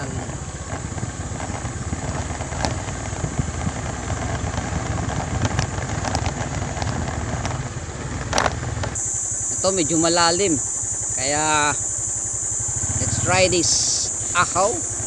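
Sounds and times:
knocks and rattles: 0.0 - 9.0
small motorcycle engine running: 0.0 - 15.0.

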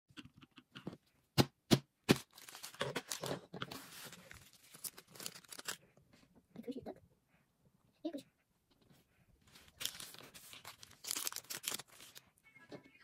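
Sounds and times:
foil packet crinkling and tearing: 2.1 - 5.8, 9.6 - 12.3.

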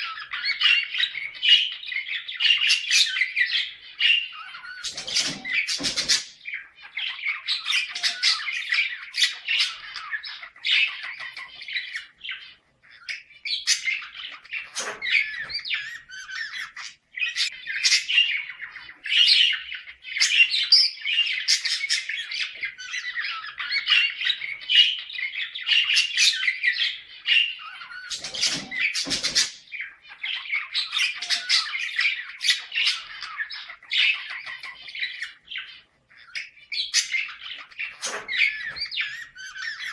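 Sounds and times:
budgerigars chattering and warbling: 0.0 - 39.9
budgie squawks and chirps: 4.3 - 19.5, 27.3 - 39.9.

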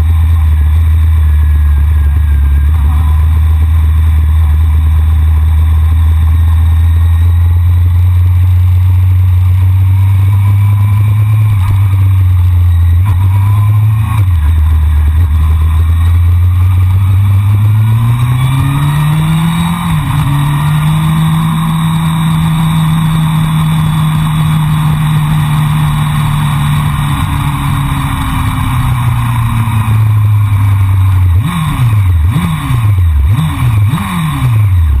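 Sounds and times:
sport bike engine revving: 9.2 - 35.0.

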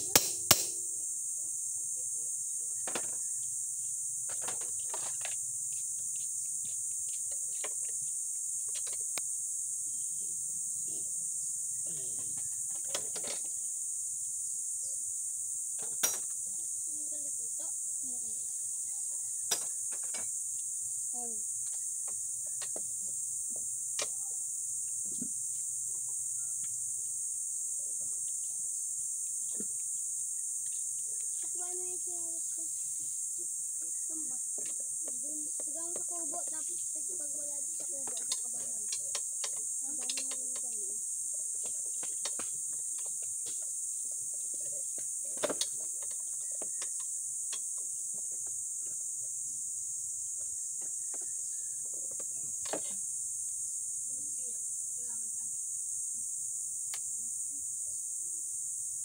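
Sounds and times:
sharp knock: 0.0 - 0.8
high-pitched insect drone: 0.0 - 59.0.

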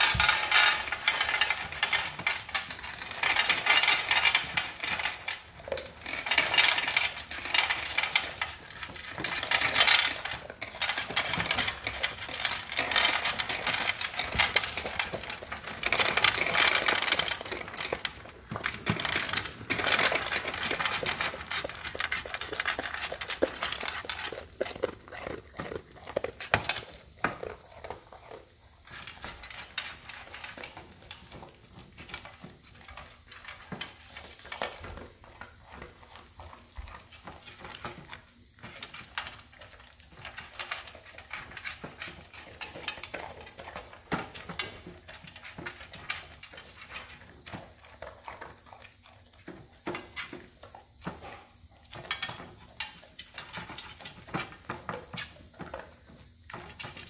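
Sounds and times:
dog crunching dry kibble: 0.0 - 57.0.

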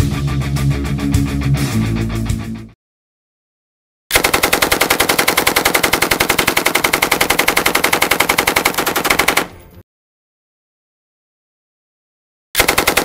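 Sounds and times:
machine gun firing: 4.1 - 9.6, 12.6 - 13.0.

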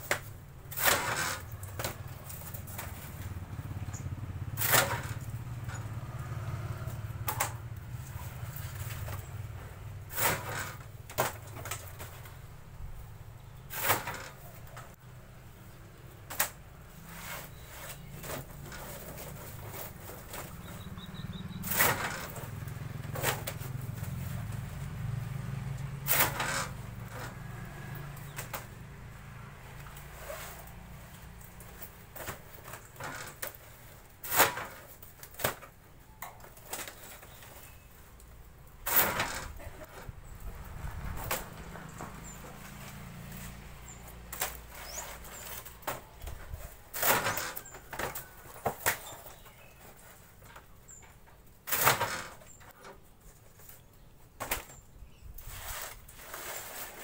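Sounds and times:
veneer cutter chopping: 0.0 - 3.2, 4.5 - 5.9, 10.0 - 12.2, 13.7 - 14.4, 17.2 - 24.6, 25.7 - 28.8, 34.2 - 35.7, 38.8 - 40.1, 40.9 - 49.5, 51.6 - 52.6
dry sheets rustling and clattering: 16.2 - 20.8, 29.7 - 38.2.

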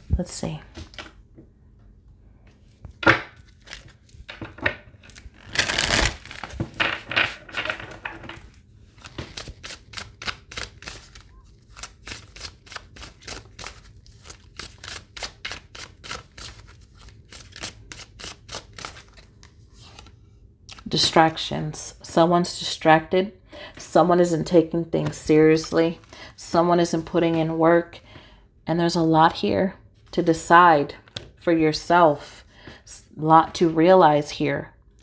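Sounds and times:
cards being shuffled: 2.8 - 20.9.

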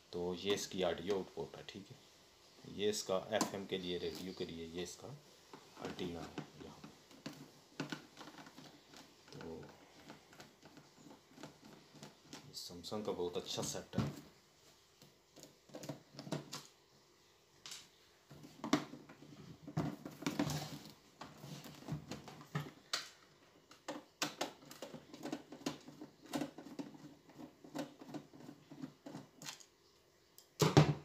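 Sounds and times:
hands handling plastic cabinet: 5.5 - 12.6, 18.3 - 29.6.

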